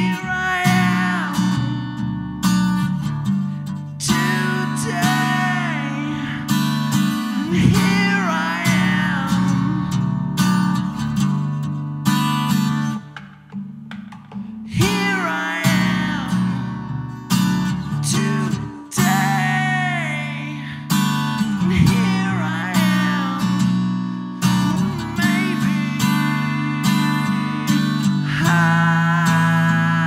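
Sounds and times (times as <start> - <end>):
man singing: 0.0 - 2.0, 3.9 - 10.2, 14.6 - 30.0
acoustic guitar strumming: 0.0 - 30.0.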